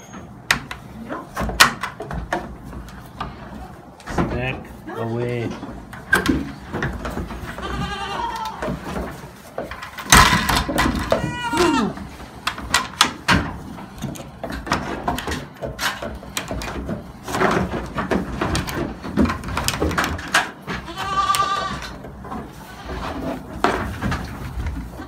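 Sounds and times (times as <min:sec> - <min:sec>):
goats knocking against wooden gate: 0:05.9 - 0:25.0
goat bleating: 0:07.4 - 0:08.7, 0:11.1 - 0:12.1, 0:20.8 - 0:23.2.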